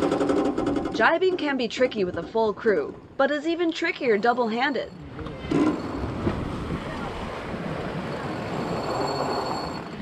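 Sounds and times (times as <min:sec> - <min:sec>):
waves rushing along hull: 0:05.1 - 0:10.0
wind buffeting microphone: 0:05.9 - 0:08.6.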